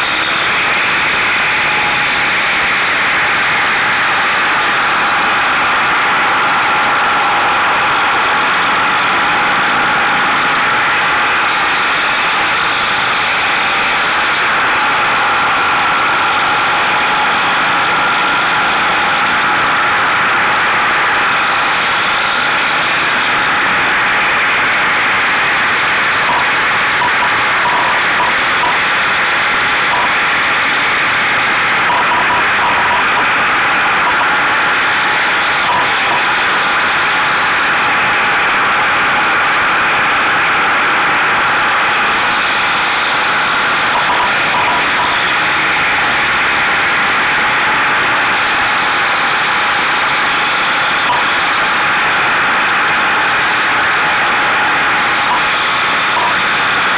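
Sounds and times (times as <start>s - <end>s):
motorcycle engine at speed: 0.0s - 56.9s.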